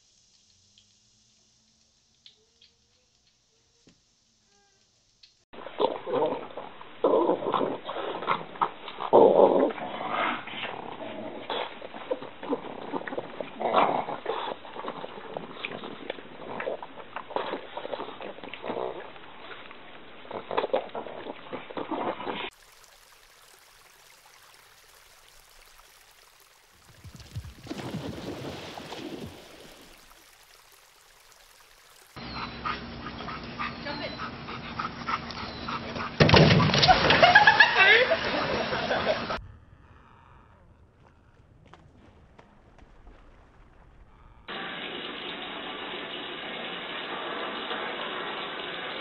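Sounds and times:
water splashing: 0:05.6 - 0:32.2, 0:36.3 - 0:39.4.

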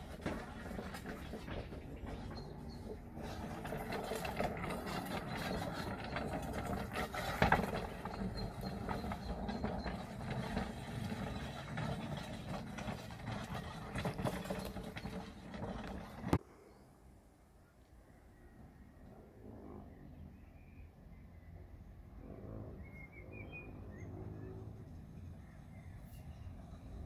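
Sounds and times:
small train rattling: 0:00.0 - 0:16.4
wheels clicking over rails: 0:00.0 - 0:16.4.

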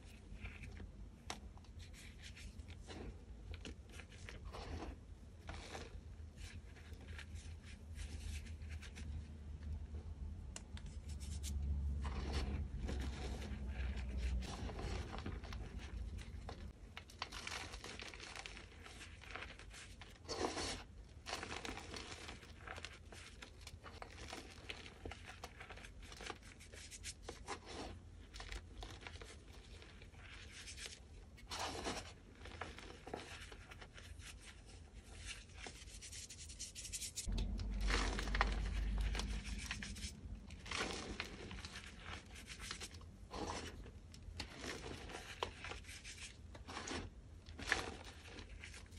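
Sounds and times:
hands crumbling chalk powder: 0:10.8 - 0:43.8.

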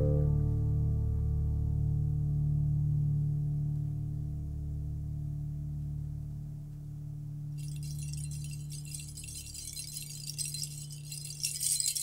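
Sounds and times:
low held musical tone: 0:00.0 - 0:12.0
high shimmering metallic jingling: 0:07.6 - 0:12.0.

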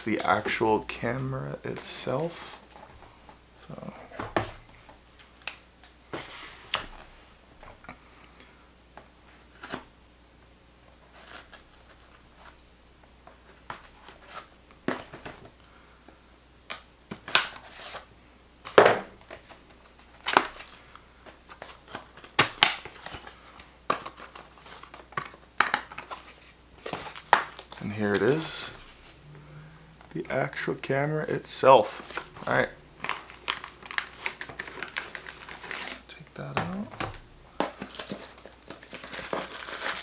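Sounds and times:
cardboard tearing and scraping: 0:37.8 - 0:40.0.

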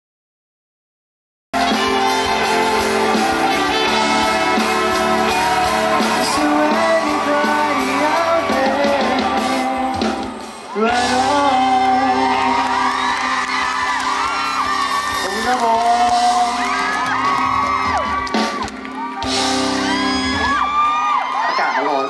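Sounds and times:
live pop band playing: 0:01.6 - 0:21.7
man singing into a microphone: 0:03.8 - 0:13.6, 0:15.2 - 0:17.0.

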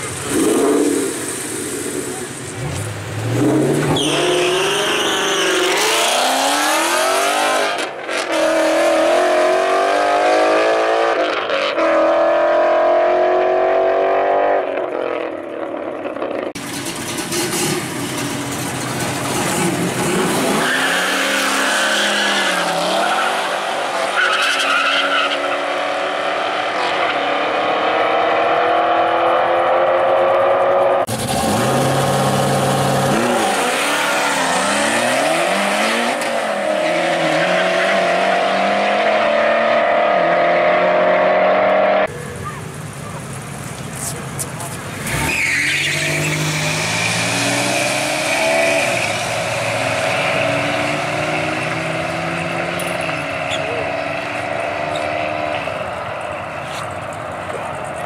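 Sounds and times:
drag-race engines accelerating: 0:00.0 - 0:58.0.

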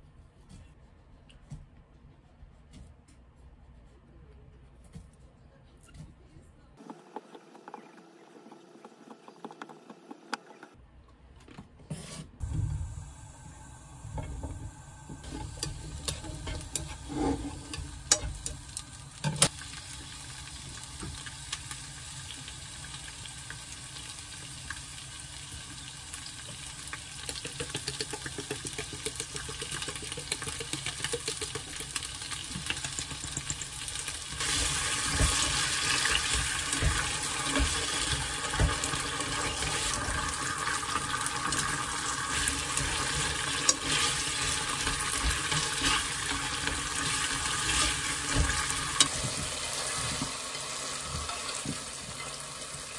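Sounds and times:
food sizzling in a frying pan: 0:12.6 - 0:52.9.

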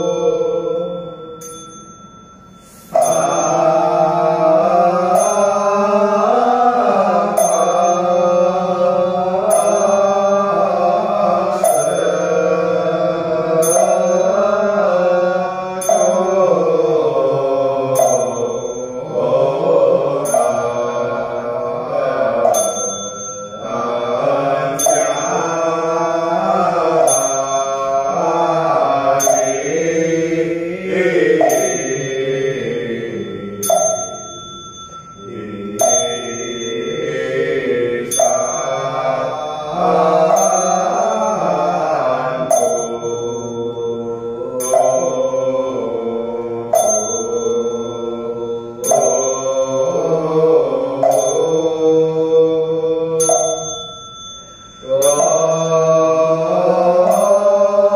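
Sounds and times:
men chanting in unison: 0:00.0 - 0:01.2, 0:02.9 - 0:34.3, 0:35.2 - 0:53.9, 0:54.8 - 0:57.9
struck ringing percussion: 0:00.0 - 0:57.9.

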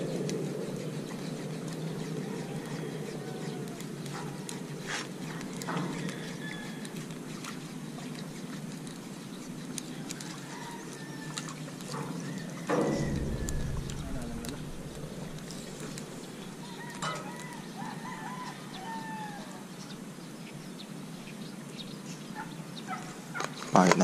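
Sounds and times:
low thump: 0:12.7 - 0:16.4
low outdoor rumble: 0:12.7 - 0:16.8.

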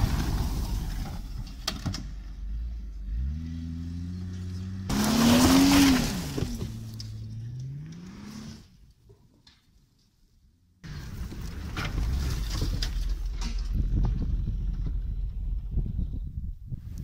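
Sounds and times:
tyres sliding on dirt: 0:00.0 - 0:02.6, 0:03.2 - 0:08.7, 0:10.8 - 0:15.6
car engine revving hard: 0:03.0 - 0:08.7.

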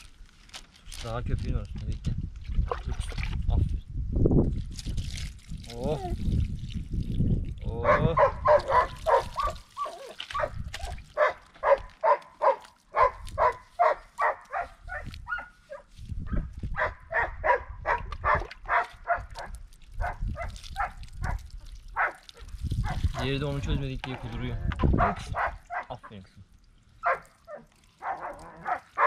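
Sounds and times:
dog barking in high yelps: 0:07.8 - 0:23.1, 0:24.8 - 0:26.0, 0:27.0 - 0:29.0.

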